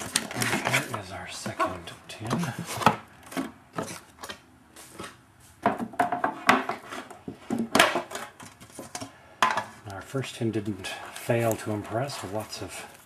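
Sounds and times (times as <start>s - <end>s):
card box handling on wood: 0.0s - 9.8s.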